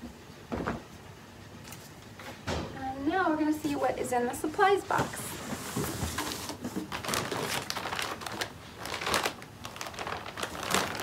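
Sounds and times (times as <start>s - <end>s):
plastic packaging crinkling: 5.8s - 11.0s.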